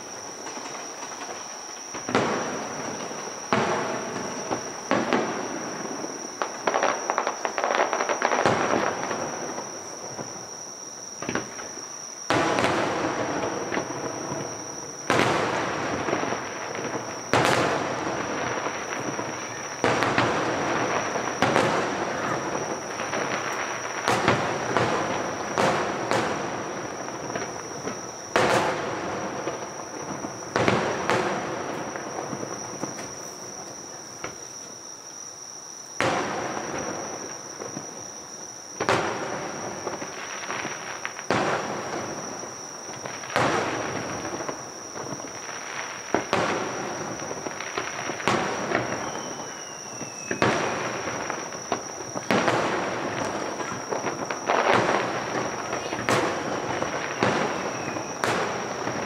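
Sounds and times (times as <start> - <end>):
fireworks bursting with crackling: 0.0 - 35.3, 35.9 - 59.0.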